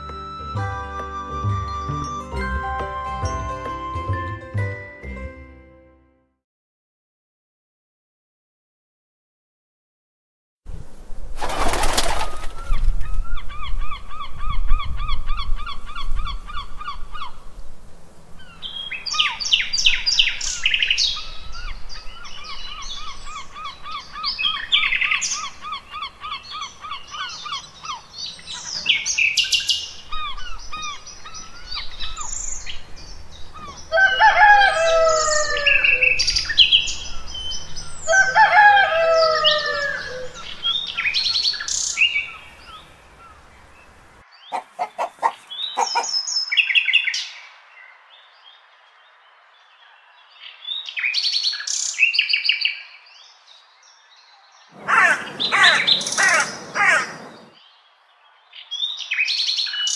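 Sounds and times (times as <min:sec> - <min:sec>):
songbirds chirping and trilling: 0:11.4 - 0:59.9
low repeated bird calls: 0:18.4 - 0:47.1, 0:54.3 - 0:59.9.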